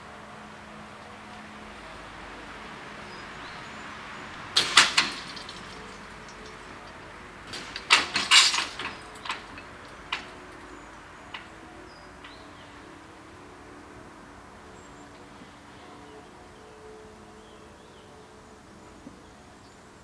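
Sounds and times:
barrier booms rattling clatter: 4.4 - 11.5.

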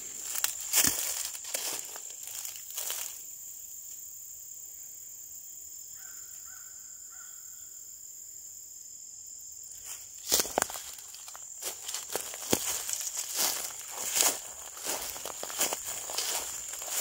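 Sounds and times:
footsteps on dry leaves: 0.0 - 3.2, 9.8 - 17.0
insects droning: 0.0 - 17.0
faint bird calling: 6.0 - 7.8.

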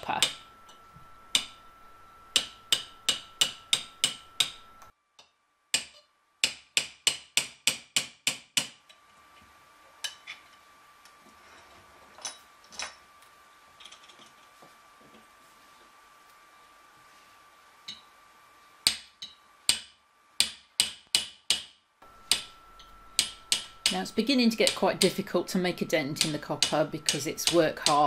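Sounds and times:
hammer striking metal punch: 0.1 - 1.6, 2.3 - 4.7, 5.7 - 8.8, 18.8 - 24.0, 26.1 - 28.0.

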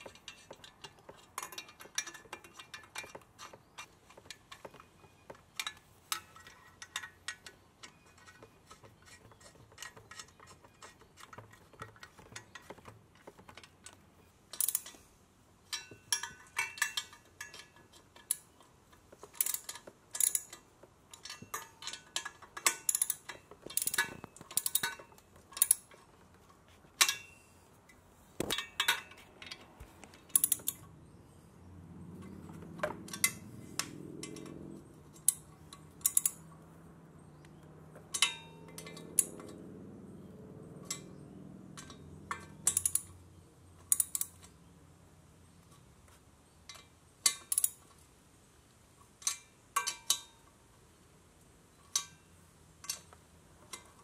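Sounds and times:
tool clinking on metal pipes: 0.0 - 15.0, 15.7 - 26.2, 30.2 - 30.9, 32.3 - 36.5, 37.4 - 39.5, 40.8 - 43.2, 49.2 - 50.4
socket ratchet clicking: 14.6 - 15.0, 19.3 - 20.6, 22.6 - 25.0, 25.6 - 25.9, 30.2 - 30.9, 33.0 - 36.5, 41.8 - 43.2, 43.8 - 44.6, 47.3 - 47.8.

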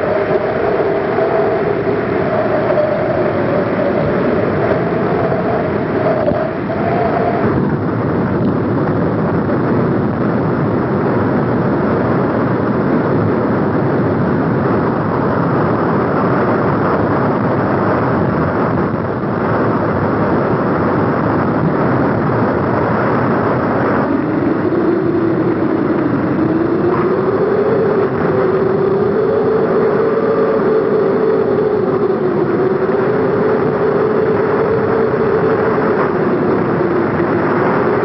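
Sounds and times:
wavering tone: 0.0 - 7.7, 24.0 - 38.0
lava fountain roar: 0.0 - 38.0.

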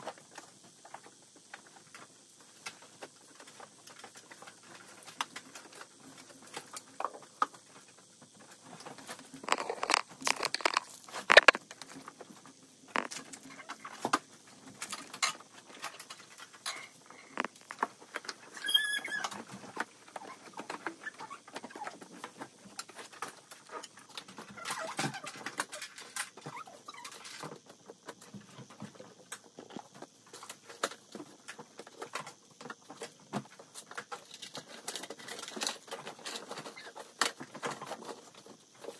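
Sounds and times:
brief high squeak: 18.6 - 19.3.

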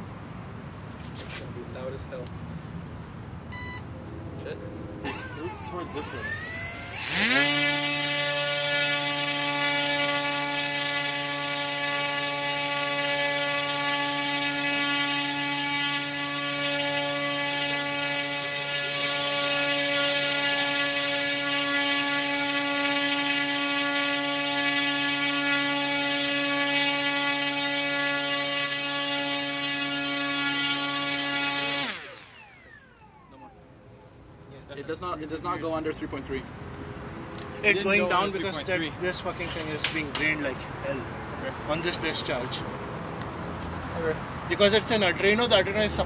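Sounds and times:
electric motor propeller buzzing drone: 5.0 - 33.7.

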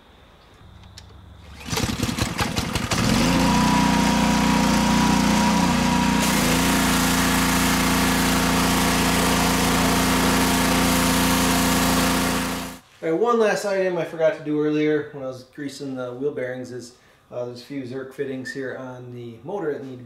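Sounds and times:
small gas engine running: 1.4 - 12.8.

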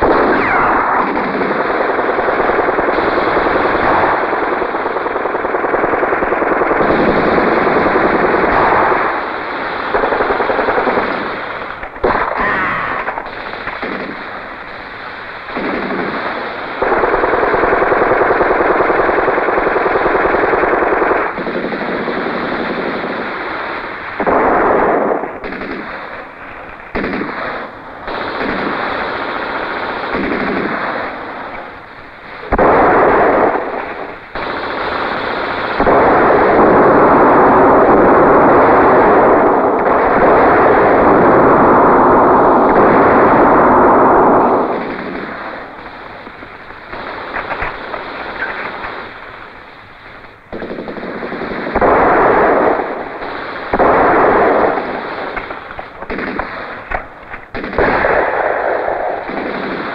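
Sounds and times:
machine-gun and rifle fire: 0.0 - 59.9.

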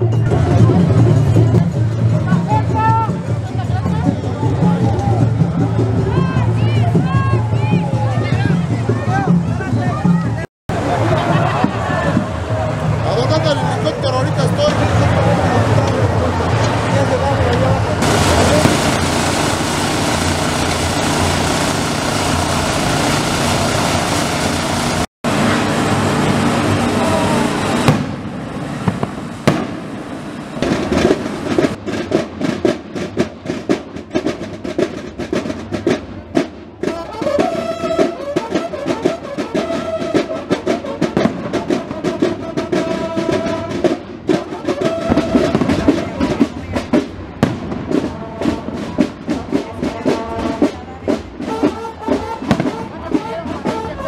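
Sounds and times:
snare drumming with rolls: 0.0 - 54.0
horns holding notes: 10.7 - 31.7, 36.8 - 46.5, 49.8 - 54.0.

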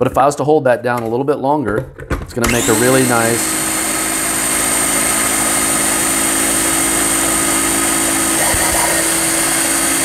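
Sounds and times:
blender motor whining: 2.4 - 10.0.

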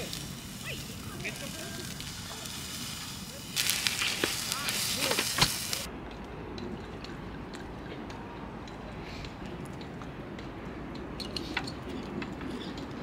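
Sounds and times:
fat popping on coals: 0.0 - 5.9
meat sizzling on grill: 0.0 - 5.9.

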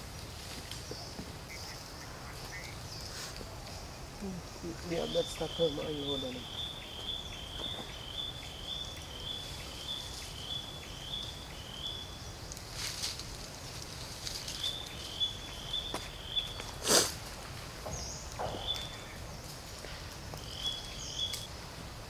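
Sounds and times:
rustling crackles: 0.0 - 5.4, 12.3 - 22.0.

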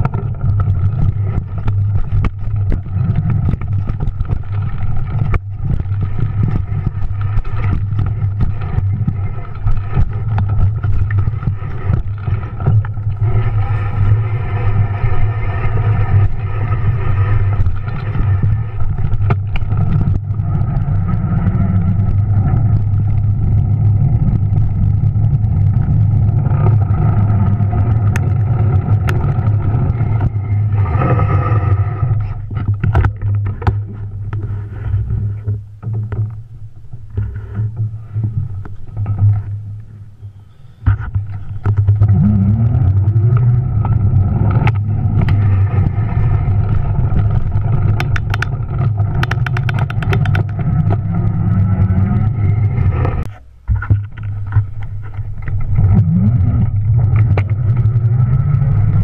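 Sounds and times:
bike knocks and rattles: 0.0 - 14.0, 32.4 - 34.5, 43.4 - 52.0.

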